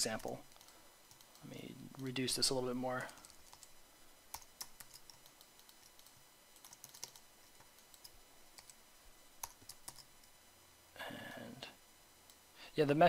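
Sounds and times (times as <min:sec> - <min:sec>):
computer keyboard clicking: 0:00.2 - 0:01.4, 0:03.0 - 0:03.7, 0:04.3 - 0:08.8, 0:09.4 - 0:10.1
computer mouse clicks: 0:00.2 - 0:01.5, 0:04.3 - 0:08.8.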